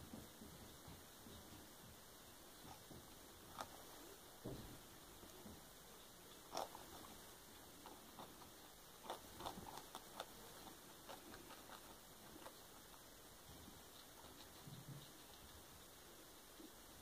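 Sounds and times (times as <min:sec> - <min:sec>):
guinea pigs chewing lettuce: 0:00.0 - 0:17.0.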